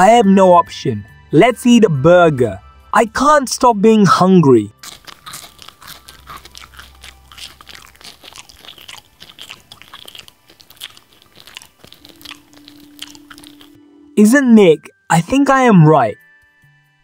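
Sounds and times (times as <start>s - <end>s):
person chewing crunchy food: 4.8s - 13.8s.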